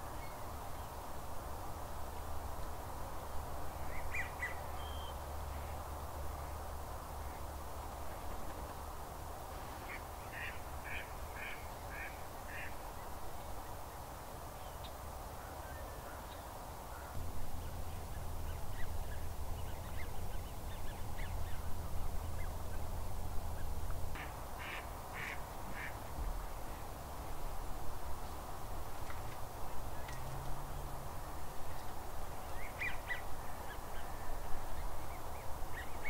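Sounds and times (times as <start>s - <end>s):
low background rumble: 17.2s - 24.5s
waterfowl calling: 24.2s - 26.0s.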